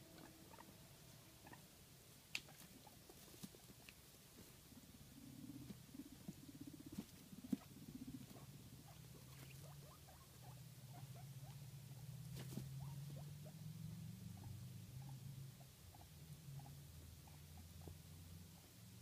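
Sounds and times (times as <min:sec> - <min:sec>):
guinea pig purring rumble: 0:00.0 - 0:19.0.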